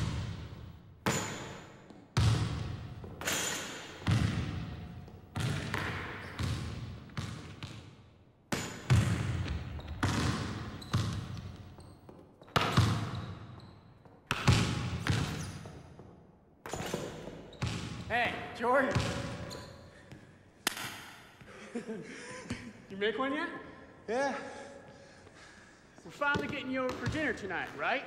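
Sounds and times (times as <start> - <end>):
basketball bouncing in echoing gym: 0.0 - 28.0
basketball hitting backboard: 8.5 - 11.5, 14.3 - 15.6.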